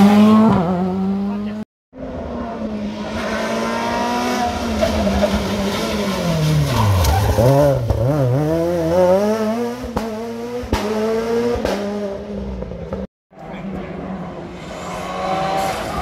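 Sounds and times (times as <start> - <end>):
rally car engine revving: 0.0 - 16.0.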